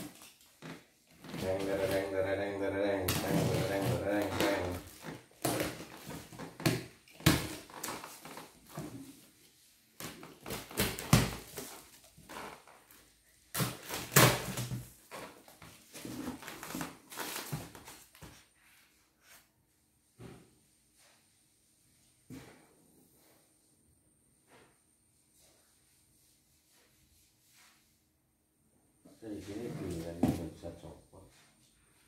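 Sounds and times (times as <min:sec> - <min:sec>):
cardboard and styrofoam rustling: 0:01.1 - 0:09.4, 0:10.0 - 0:18.3.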